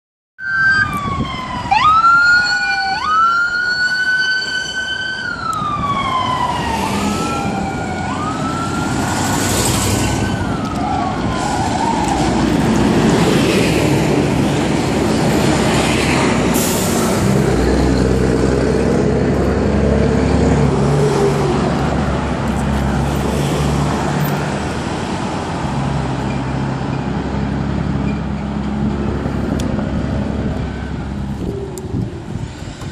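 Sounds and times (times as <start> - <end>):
police siren wailing: 0.4 - 13.8
vehicles passing: 0.6 - 32.9
bus engine drone: 0.8 - 32.9.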